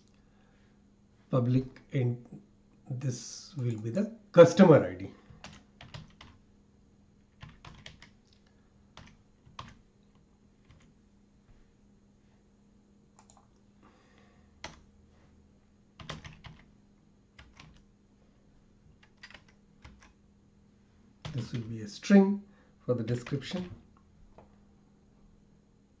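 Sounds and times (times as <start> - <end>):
keyboard typing: 5.2 - 6.4, 7.3 - 8.3, 9.0 - 9.8, 10.6 - 10.9, 13.2 - 13.5, 14.6 - 14.9, 16.0 - 16.7, 17.4 - 17.8, 19.0 - 20.2, 21.2 - 21.7.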